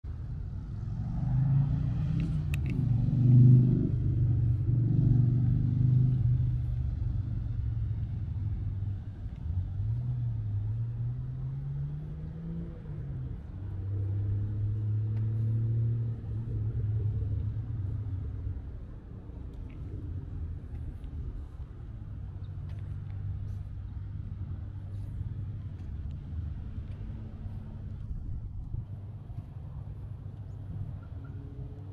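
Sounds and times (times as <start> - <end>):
car engines running low revs: 0.1 - 31.9.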